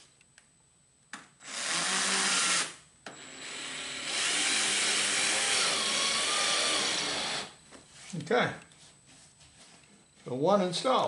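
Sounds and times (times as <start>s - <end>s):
cordless drill driving a screw: 1.4s - 7.6s.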